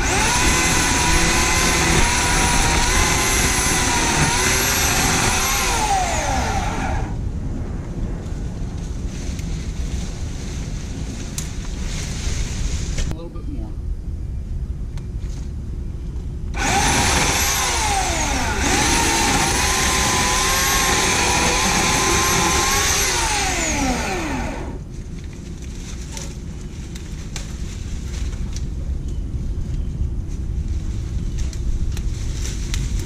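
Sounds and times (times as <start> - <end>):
electric chainsaw whine: 0.0 - 7.2, 16.6 - 24.8
wind rumble on microphone: 0.0 - 33.0.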